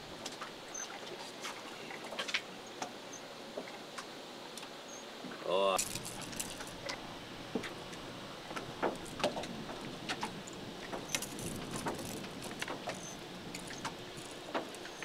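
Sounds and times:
steady hiss: 0:05.4 - 0:15.0
small metallic clicks and rattles: 0:05.8 - 0:06.8, 0:10.5 - 0:15.0.

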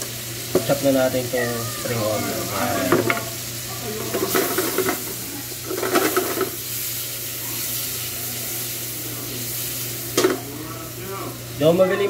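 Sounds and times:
shrimp sizzling in frying pan: 0:00.0 - 0:12.0.

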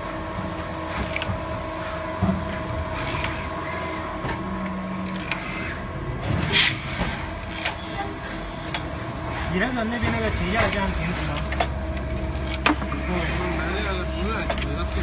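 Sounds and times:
machine humming: 0:00.0 - 0:15.0
tooling knocks: 0:12.6 - 0:13.1.

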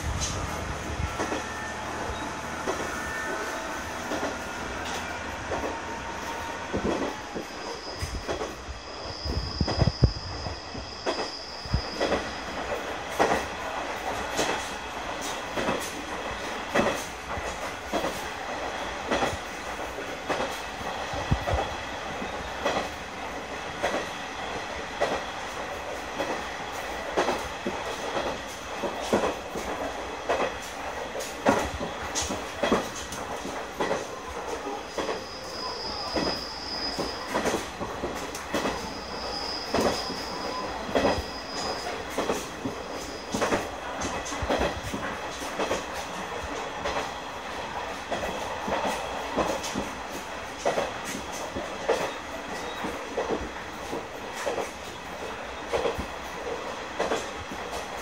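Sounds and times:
high wheel squeal: 0:00.0 - 0:13.2, 0:34.1 - 0:43.6
train rumble: 0:00.0 - 0:58.0
wheels clicking on track: 0:25.0 - 0:58.0.

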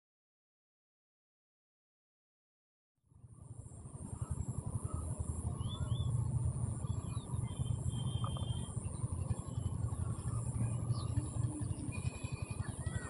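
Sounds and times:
low buffeting rumble: 0:03.1 - 0:13.0.

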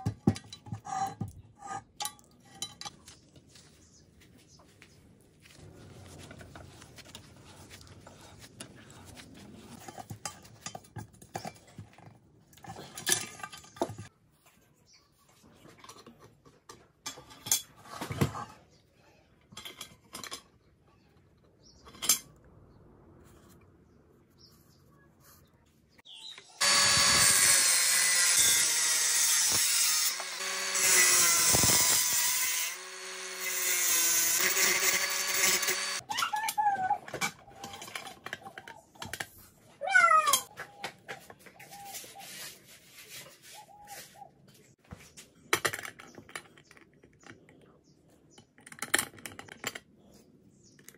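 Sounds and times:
angle grinder cutting steel: 0:26.6 - 0:36.0.

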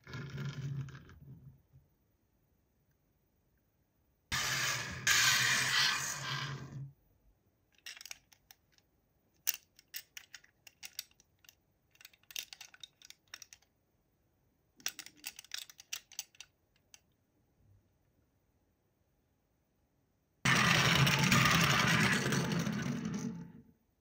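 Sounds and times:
loud noisy sound: 0:04.3 - 0:06.4, 0:20.5 - 0:22.2.

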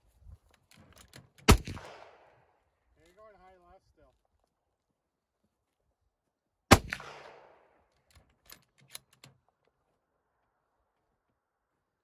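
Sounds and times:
rifle shot with echo: 0:01.4 - 0:02.4, 0:06.7 - 0:07.8.

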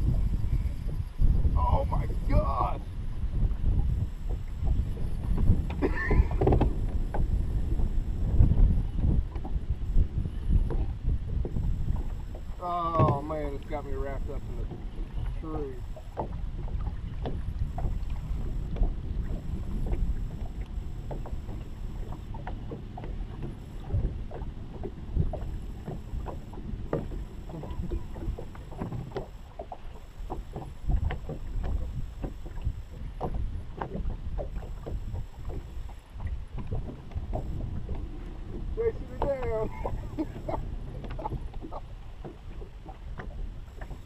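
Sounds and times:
water slapping against boat hull: 0:00.0 - 0:44.0
wind buffeting microphone: 0:00.0 - 0:44.0.

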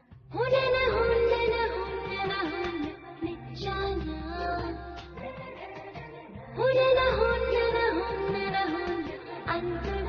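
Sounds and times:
steady low bass: 0:00.1 - 0:02.5, 0:03.2 - 0:05.4, 0:06.4 - 0:08.6, 0:09.5 - 0:10.0.

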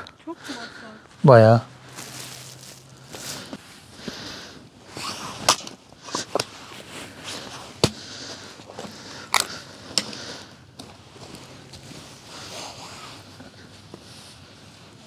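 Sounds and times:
axe chopping wood: 0:07.8 - 0:08.1.

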